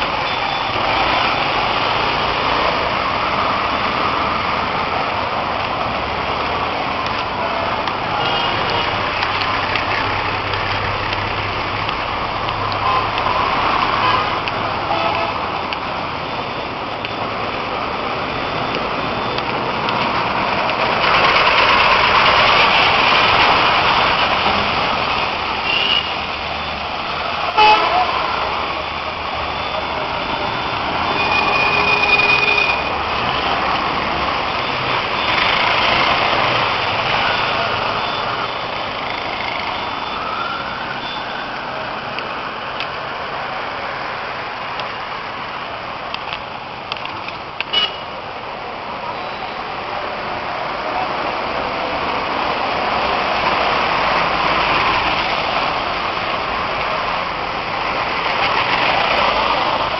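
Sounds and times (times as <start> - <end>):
bus driving past: 0.0 - 27.4
rain and tyres on wet road: 0.0 - 59.9.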